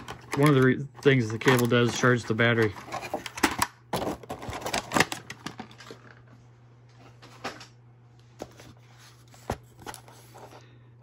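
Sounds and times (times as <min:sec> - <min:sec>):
plastic tray crackling: 0:00.0 - 0:06.2.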